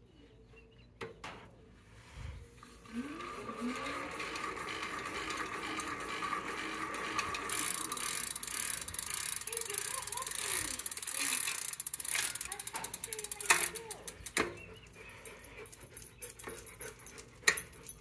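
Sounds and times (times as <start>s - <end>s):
bicycle chain rattling and clicking: 2.6s - 18.0s.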